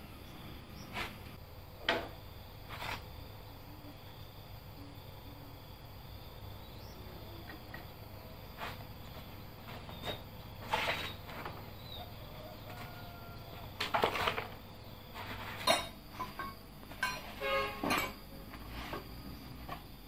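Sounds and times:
insects chirring: 0.0 - 20.0
metal tools clinking: 15.4 - 18.3.

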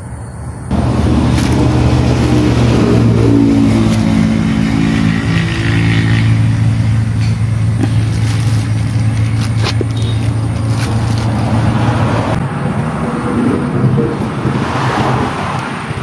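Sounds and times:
plastic bags rustling: 0.7 - 4.6, 7.7 - 12.3
motor engine humming: 0.7 - 16.0.

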